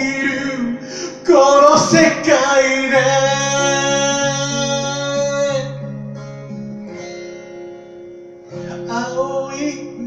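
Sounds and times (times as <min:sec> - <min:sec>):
man singing: 0:00.0 - 0:05.9, 0:08.6 - 0:10.0
acoustic guitar strummed and picked: 0:00.0 - 0:10.0.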